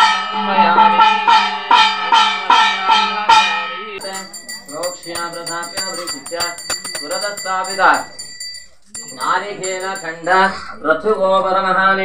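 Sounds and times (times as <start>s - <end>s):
voices: 3.8s - 12.0s
hand bell ringing: 4.0s - 11.2s
quiet jingling: 4.0s - 11.7s.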